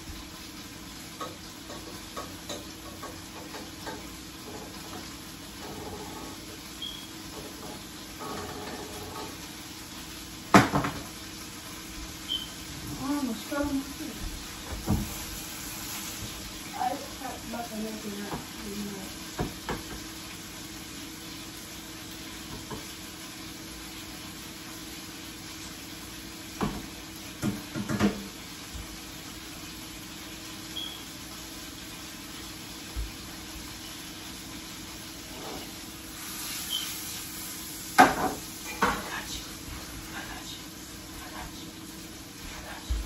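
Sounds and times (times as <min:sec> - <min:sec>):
shrimp sizzling in a pan: 0:00.0 - 0:43.0
pans and utensils clattering: 0:01.2 - 0:06.6, 0:07.2 - 0:09.5, 0:35.3 - 0:35.8, 0:38.0 - 0:39.2.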